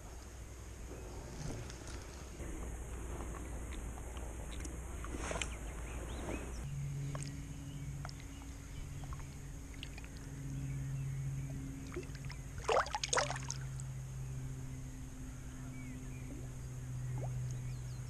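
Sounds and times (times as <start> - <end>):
fish splashing: 11.9 - 13.7
shallow water sloshing: 11.9 - 13.8.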